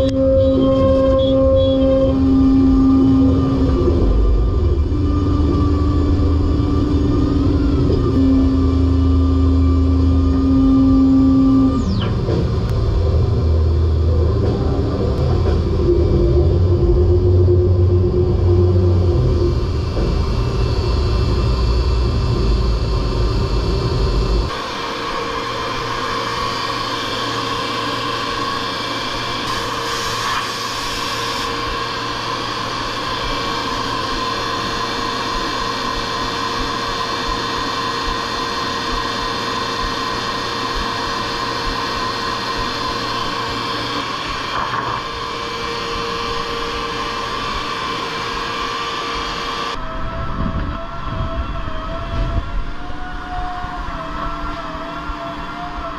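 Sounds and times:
deep low machine rumble: 0:00.0 - 0:24.6
low hum: 0:00.0 - 0:54.1
machine noise with whine: 0:00.0 - 0:55.9.

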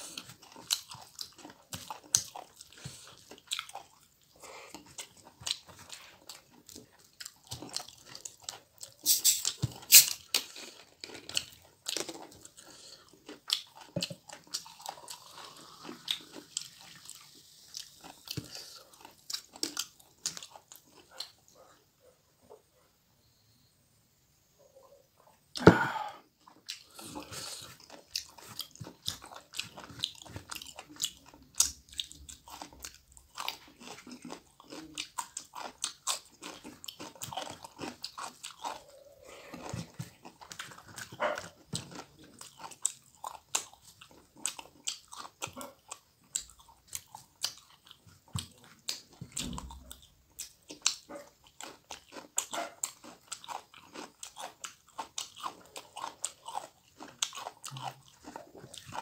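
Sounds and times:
man chewing food: 0:00.0 - 0:23.3, 0:24.6 - 0:59.0
wet mouth clicks and smacks: 0:09.0 - 0:10.5.

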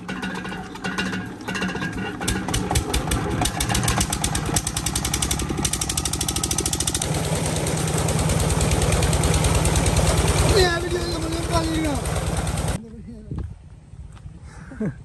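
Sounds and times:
diesel pump engine chugging: 0:00.0 - 0:12.8
water rushing from a pipe: 0:03.4 - 0:12.8.

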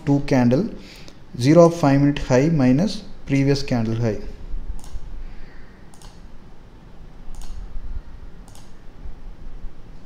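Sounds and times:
computer mouse clicking: 0:04.8 - 0:05.0, 0:05.9 - 0:06.2, 0:07.3 - 0:07.7, 0:08.4 - 0:08.8.

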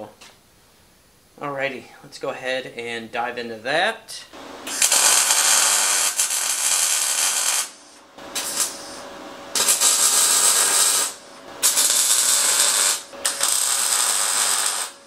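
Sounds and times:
welding arc crackling: 0:04.4 - 0:15.0.

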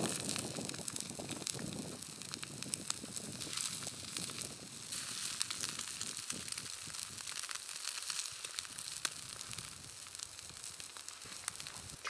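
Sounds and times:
eggs sizzling in a pan: 0:00.0 - 0:12.0.

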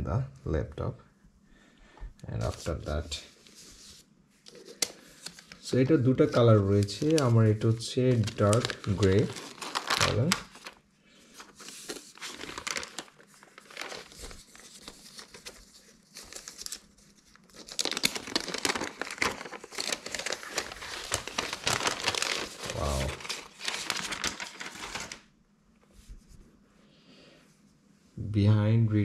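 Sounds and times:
plastic wrap crinkling and tearing: 0:04.5 - 0:10.8, 0:11.4 - 0:25.2.

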